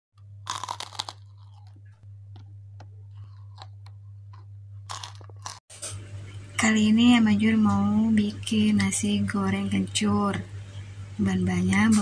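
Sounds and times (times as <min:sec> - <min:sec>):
steady low hum: 0:00.2 - 0:12.0
crunching crispy cracker: 0:00.4 - 0:02.5, 0:03.2 - 0:05.6.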